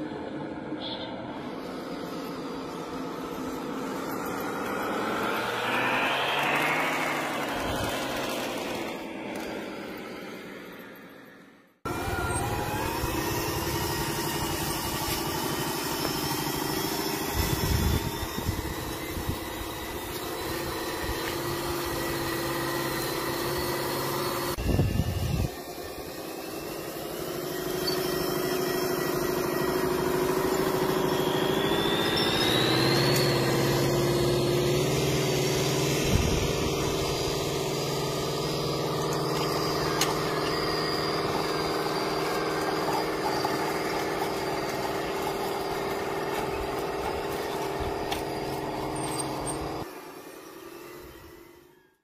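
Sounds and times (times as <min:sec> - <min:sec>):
toy truck engine running: 0:01.3 - 0:52.0.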